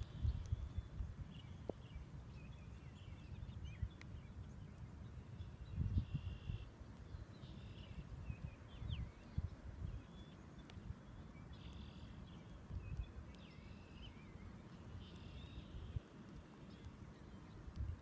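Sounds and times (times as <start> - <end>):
wind gusting on microphone: 0.0 - 11.5, 15.4 - 18.0.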